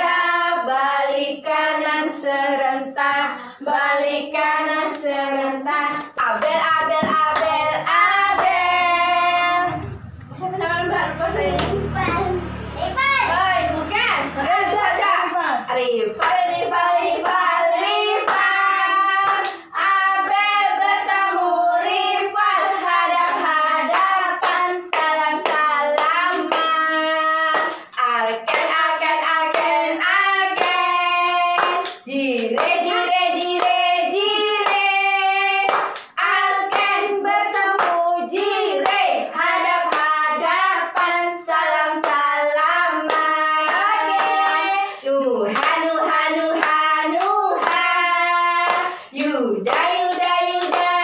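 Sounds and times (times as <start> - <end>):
woman and children singing: 0.0 - 51.0
hand claps: 18.2 - 19.7, 23.3 - 28.8, 30.5 - 33.9, 35.7 - 37.0, 45.6 - 51.0.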